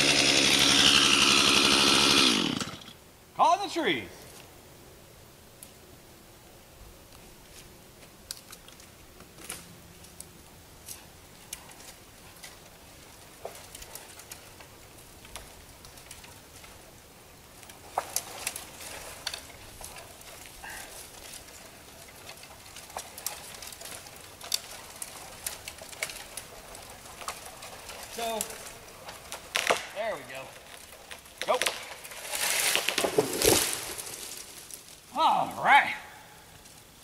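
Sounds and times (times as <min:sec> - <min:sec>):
light clicks and rustles: 0:07.1 - 0:16.9.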